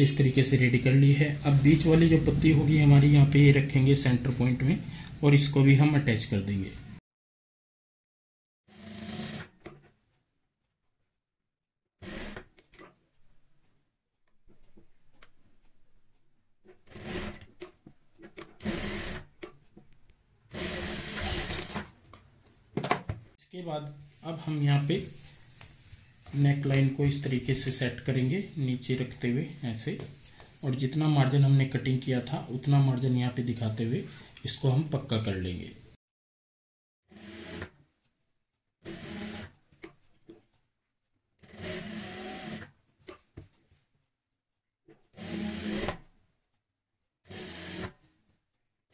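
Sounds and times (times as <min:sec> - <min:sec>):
sewing machine stitching: 0:08.7 - 0:09.8, 0:16.8 - 0:17.7, 0:18.4 - 0:19.3, 0:20.5 - 0:21.9, 0:37.1 - 0:37.8, 0:38.8 - 0:39.6, 0:41.4 - 0:42.7, 0:45.1 - 0:46.0, 0:47.3 - 0:48.0.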